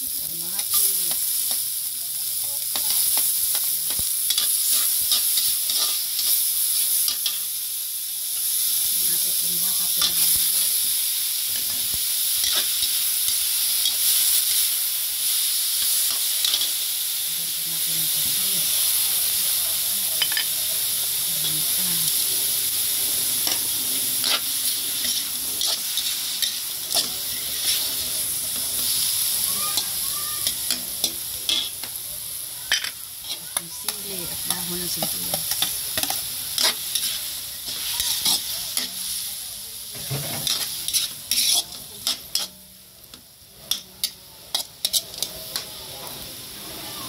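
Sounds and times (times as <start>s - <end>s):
meat sizzling in a wok: 0.0s - 47.0s
spatula scraping and clicking on pan: 39.9s - 45.7s.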